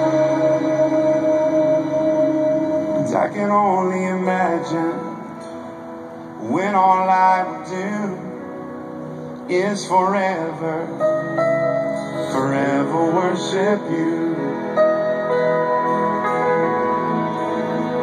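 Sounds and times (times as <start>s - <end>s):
rock band and orchestra ballad: 0.0s - 18.0s.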